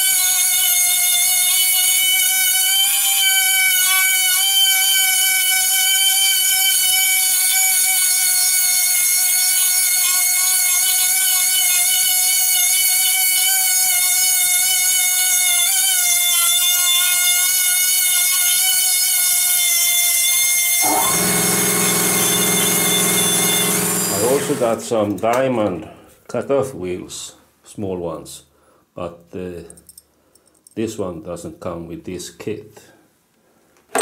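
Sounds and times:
air die grinder whining: 20.6 - 24.8
lower-pitched steady running sound: 20.8 - 24.8.

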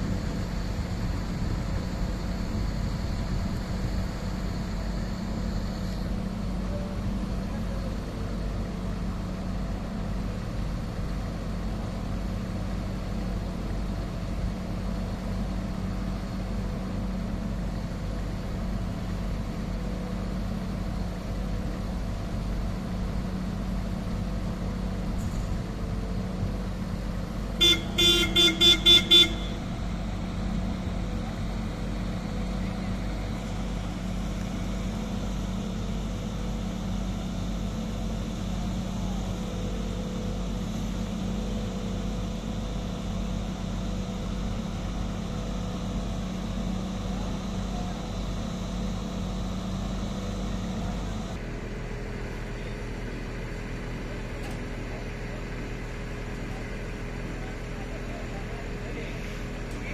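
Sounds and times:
diesel engine running: 0.0 - 59.9
horn short toots: 27.6 - 29.7.

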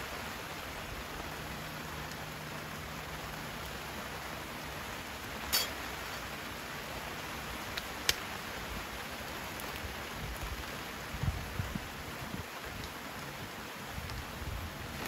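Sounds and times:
rain on wet ground: 0.0 - 15.0
wood fire snapping: 7.6 - 8.4.

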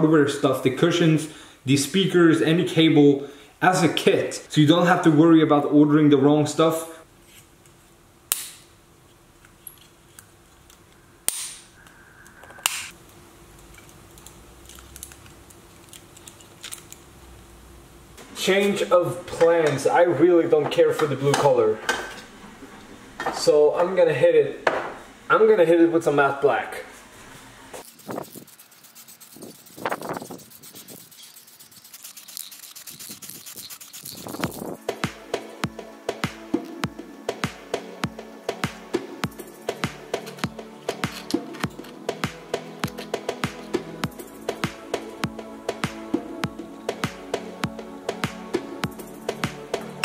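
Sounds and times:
plastic parts clicking: 13.6 - 17.0
spray paint can hissing: 27.8 - 34.9.

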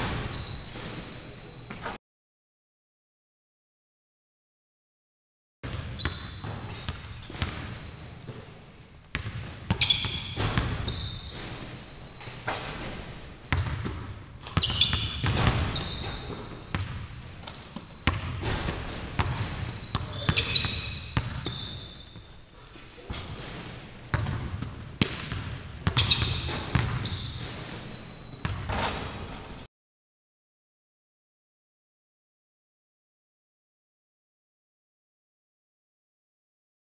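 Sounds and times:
sneakers squeaking: 0.0 - 2.0, 5.7 - 29.7
ball hitting rim and backboard: 5.7 - 8.4, 9.1 - 22.3, 23.0 - 29.7
basketball bouncing on court: 5.7 - 22.4, 23.1 - 29.7.

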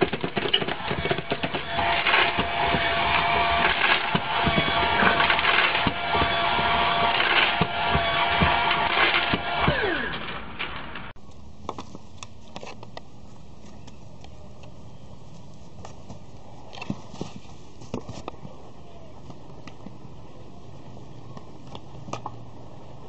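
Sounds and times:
pet feeder motor whine: 0.0 - 11.4.

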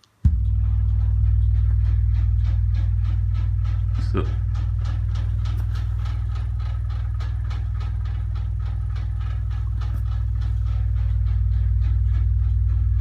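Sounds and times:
deep subwoofer drone: 0.2 - 13.0
fast rattling ticks: 0.4 - 13.0.

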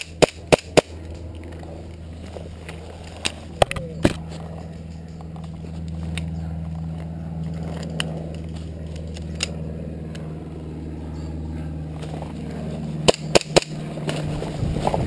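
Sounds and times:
airsoft pistol shots: 0.0 - 0.9, 13.0 - 13.8
steady low hum: 0.0 - 15.0
brush rustling: 0.9 - 9.1, 13.8 - 15.0.

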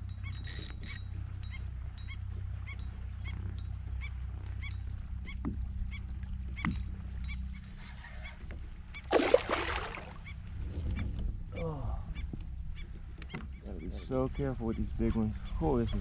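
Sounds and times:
steady low hum: 0.0 - 16.0
fish splashing at surface: 9.1 - 10.2.

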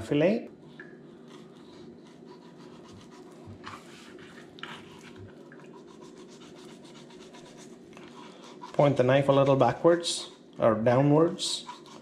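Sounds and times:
knife scraping fish fillet: 1.2 - 9.0, 11.3 - 12.0.

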